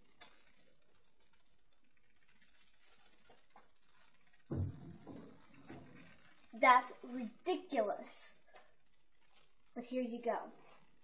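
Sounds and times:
dull thump on camera: 4.5 - 5.8
small knock: 4.5 - 5.9.

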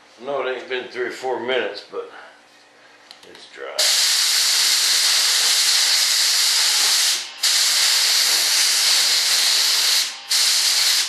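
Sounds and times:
spray gun hissing: 3.8 - 11.0.

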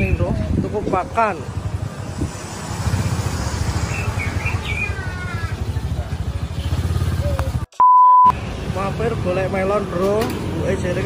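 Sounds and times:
motorcycle engine idling: 3.7 - 7.6
steady test-pattern beep: 7.8 - 8.4.

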